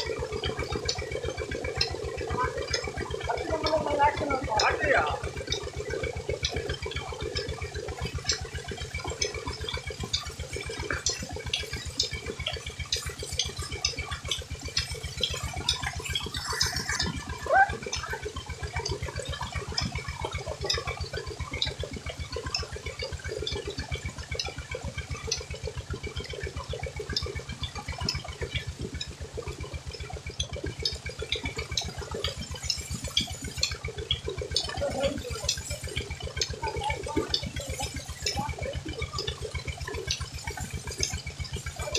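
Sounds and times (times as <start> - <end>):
low regular throb: 0.0 - 41.9
water gushing from a pipe: 0.0 - 41.9.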